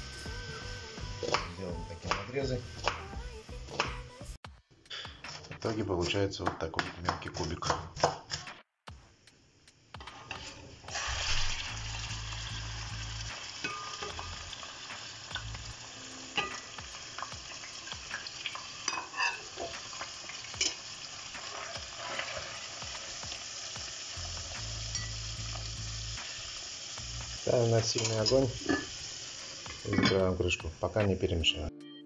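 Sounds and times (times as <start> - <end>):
meat sizzling in hot oil: 0.0 - 3.0, 9.3 - 31.0.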